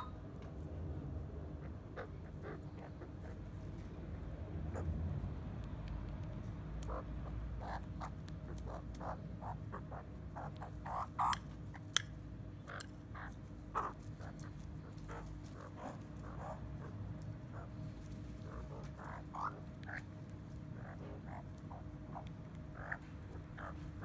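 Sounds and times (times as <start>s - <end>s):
magpies giving soft calls: 0.0s - 0.2s, 1.5s - 3.8s, 4.6s - 5.0s, 6.8s - 24.0s.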